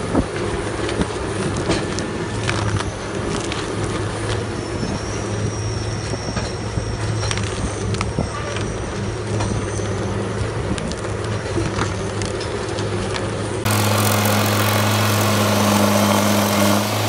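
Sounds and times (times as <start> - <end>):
diesel engine running: 9.0 - 17.0
thin high whine: 13.7 - 17.0.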